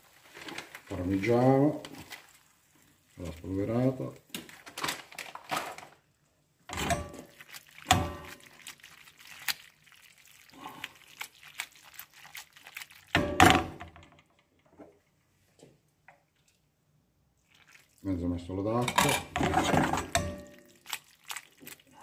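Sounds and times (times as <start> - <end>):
pasta shifting in pan: 0.0 - 5.9, 6.7 - 13.4
pan knocking and scraping on grate: 18.8 - 20.5.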